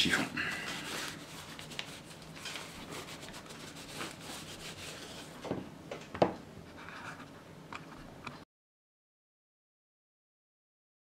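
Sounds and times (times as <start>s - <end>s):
cloth rubbing on a toy gun: 0.7s - 5.4s.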